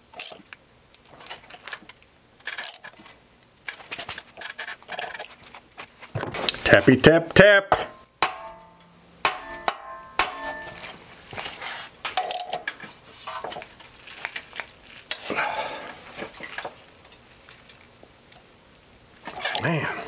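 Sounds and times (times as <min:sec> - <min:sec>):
light metal clinks and handling: 0:01.0 - 0:05.6, 0:19.2 - 0:19.8
sharp metallic taps: 0:07.7 - 0:10.9.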